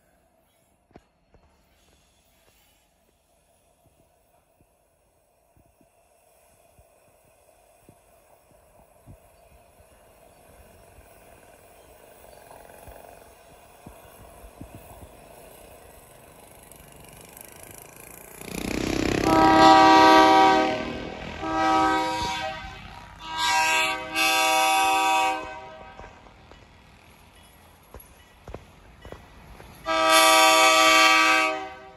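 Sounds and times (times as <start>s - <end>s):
locomotive air horn: 18.4s - 26.2s, 29.9s - 31.9s.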